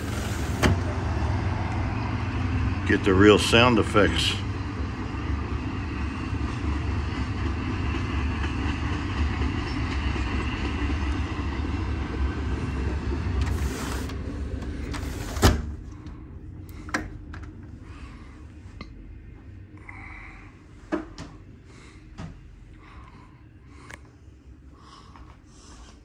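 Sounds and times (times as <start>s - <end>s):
freight train passing: 0.0s - 17.9s.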